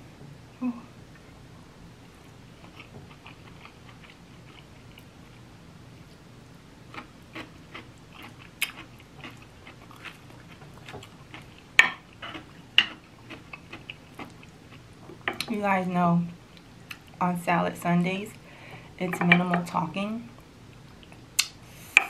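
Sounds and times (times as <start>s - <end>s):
person chewing food: 2.1s - 5.5s, 6.9s - 15.5s.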